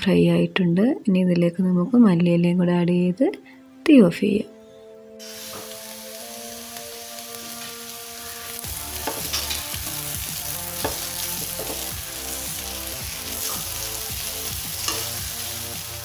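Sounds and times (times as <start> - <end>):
meat sizzling in oil: 5.2 - 16.0.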